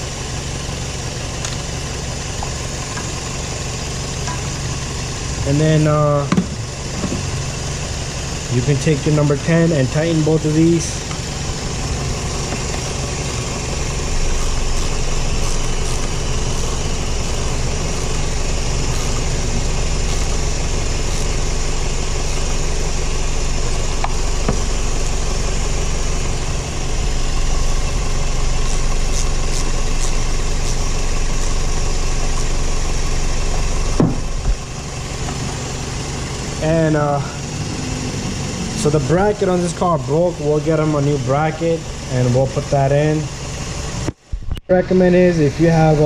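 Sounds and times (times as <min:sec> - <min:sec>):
car engine idling: 0:00.0 - 0:46.0
knock: 0:34.0 - 0:34.2.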